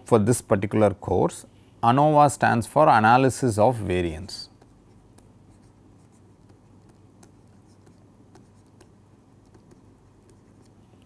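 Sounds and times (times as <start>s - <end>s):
low steady hum: 0.0s - 11.0s
stylus scratching on pen tablet: 4.6s - 10.9s.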